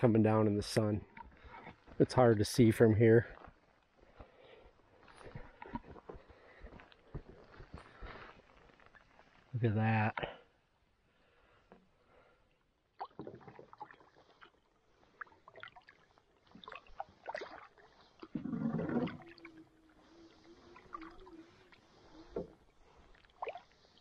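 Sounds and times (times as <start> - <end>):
paddle strokes splashing: 13.0 - 24.0.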